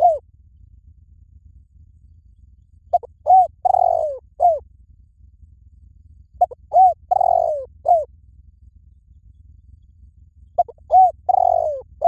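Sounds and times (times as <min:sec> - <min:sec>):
dove cooing: 0:00.0 - 0:00.3, 0:02.9 - 0:04.7, 0:06.4 - 0:08.2, 0:10.6 - 0:12.0.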